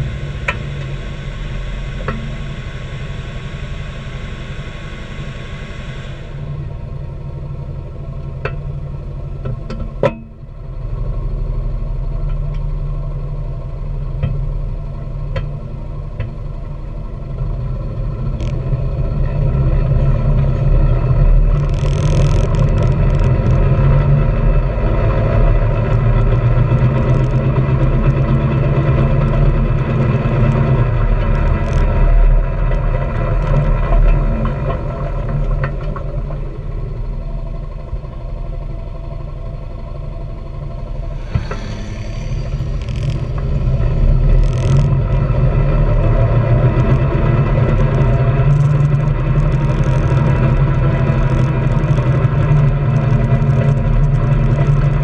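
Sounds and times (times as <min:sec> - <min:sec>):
short rushes of noise: 0:00.0 - 0:06.6, 0:41.0 - 0:45.0
vehicle engine running: 0:00.0 - 0:55.0.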